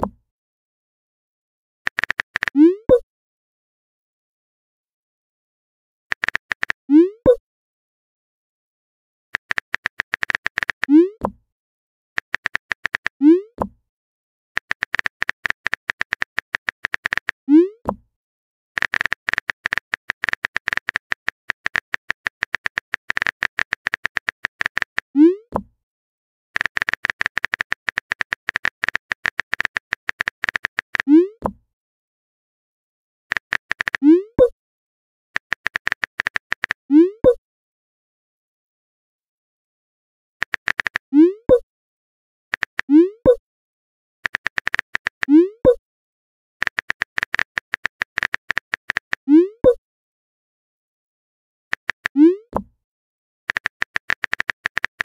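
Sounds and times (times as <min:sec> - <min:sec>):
keyboard tap clicks: 0:46.6 - 0:49.2, 0:53.5 - 0:55.0.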